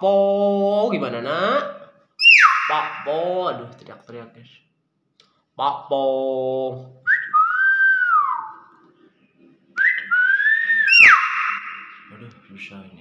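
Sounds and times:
bird whistles and screech: 2.2s - 3.2s, 9.8s - 12.2s.

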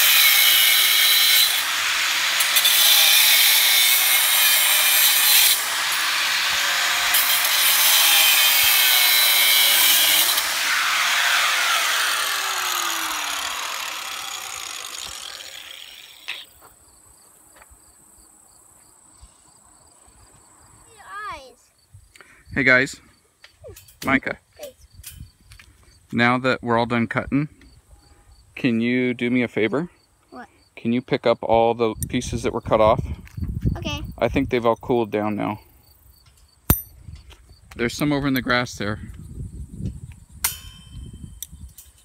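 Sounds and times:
angle grinder cutting steel wire: 0.0s - 16.6s.

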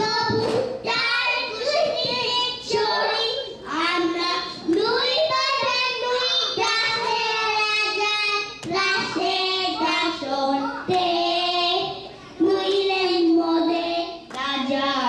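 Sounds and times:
girls singing into microphones: 0.0s - 15.0s.

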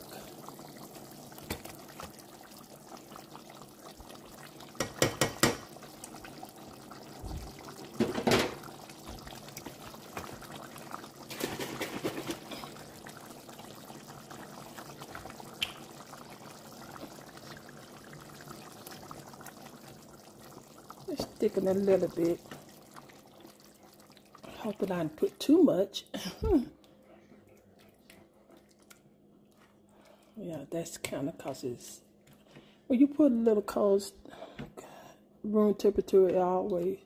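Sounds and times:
liquid pouring and sloshing: 0.0s - 25.5s, 26.5s - 30.4s.

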